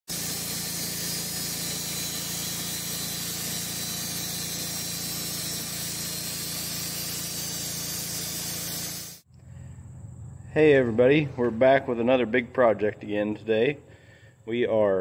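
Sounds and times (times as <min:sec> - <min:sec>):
saw blade hissing: 0:00.1 - 0:09.3
sawmill motor running: 0:00.1 - 0:09.3.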